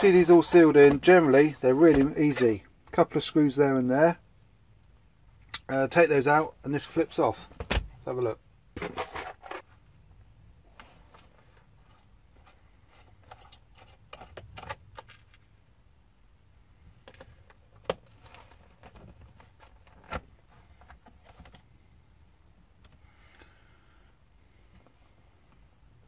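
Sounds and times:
clicks and metallic clinks: 0:12.4 - 0:15.4.

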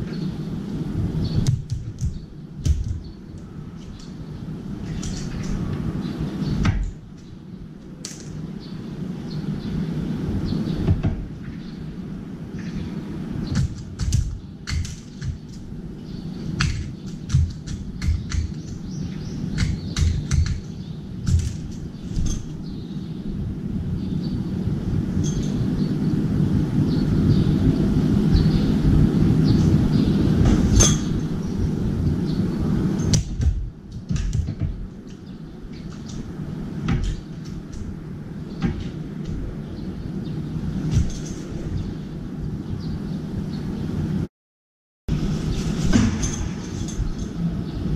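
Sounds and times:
steady low rumble: 0:00.0 - 0:44.3
bird feet and beak tapping metal: 0:01.4 - 0:04.2, 0:13.5 - 0:15.7, 0:16.5 - 0:22.6.

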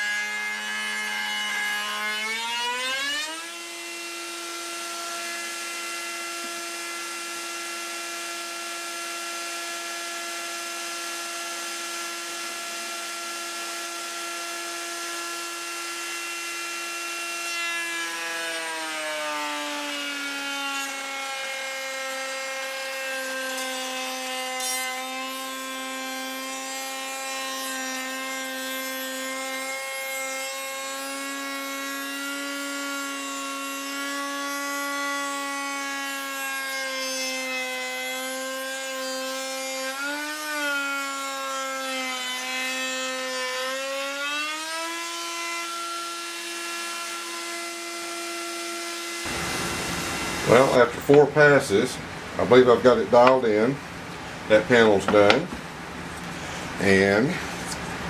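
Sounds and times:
router whining at high speed: 0:00.0 - 0:26.2, 0:46.1 - 0:51.8.

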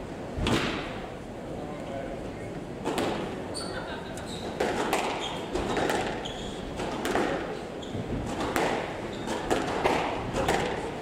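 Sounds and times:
squash ball hits: 0:00.4 - 0:01.0, 0:02.8 - 0:03.3, 0:04.6 - 0:11.0
shoe squeaks on hardwood floor: 0:03.5 - 0:06.8, 0:07.8 - 0:08.2, 0:09.0 - 0:09.5.

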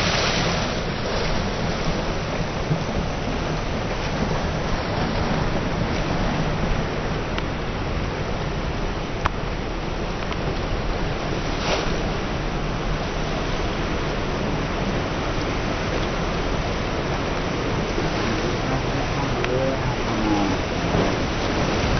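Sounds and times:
sea surf washing: 0:00.0 - 0:21.9
wind rumble on microphone: 0:00.0 - 0:21.9.

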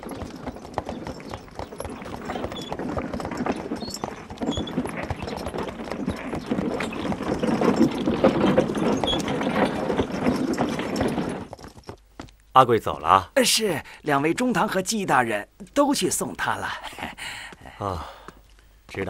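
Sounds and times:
horse hooves clopping: 0:00.0 - 0:12.5.

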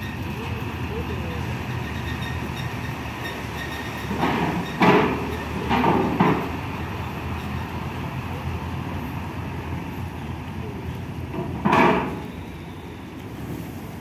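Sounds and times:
low truck engine rumble: 0:00.0 - 0:14.0
metallic clanks on steel ramp: 0:01.8 - 0:06.6, 0:11.3 - 0:12.3.

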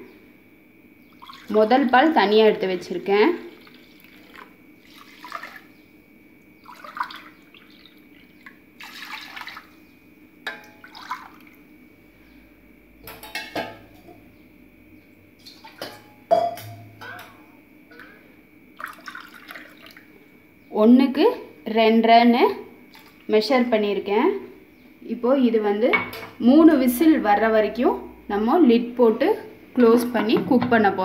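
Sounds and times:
faint steady hum: 0:00.0 - 0:31.0
liquid splashing into a pot: 0:03.6 - 0:05.7, 0:06.7 - 0:07.8, 0:08.4 - 0:09.7, 0:10.5 - 0:11.6, 0:18.8 - 0:20.1
cup knocking against metal pot: 0:15.8 - 0:17.4.

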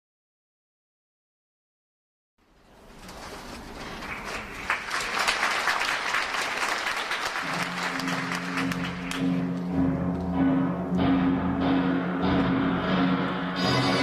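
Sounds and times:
audience applauding: 0:03.5 - 0:09.7
orchestral music with low notes: 0:07.5 - 0:14.0.

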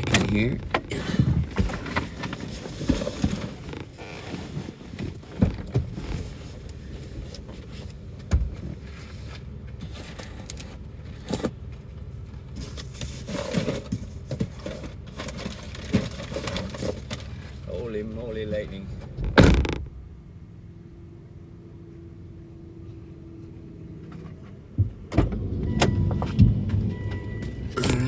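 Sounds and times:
wind buffeting a car: 0:23.9 - 0:27.8.

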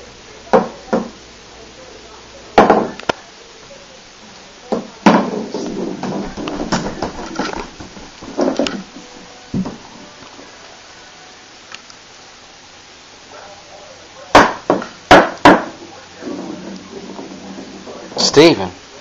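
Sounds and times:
golf ball knocking on hardwood floor: 0:02.6 - 0:02.9
scraping on floor: 0:05.1 - 0:08.9.

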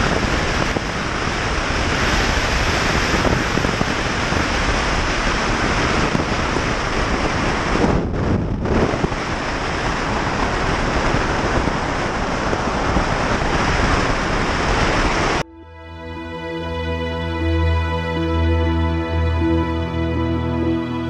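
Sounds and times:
wind rush over microphone: 0:00.0 - 0:15.5.

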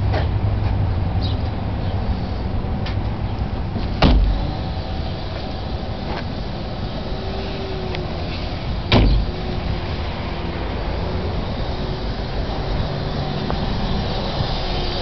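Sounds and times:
steady background noise: 0:00.0 - 0:15.0
car door shutting: 0:03.8 - 0:04.6, 0:08.3 - 0:09.4.

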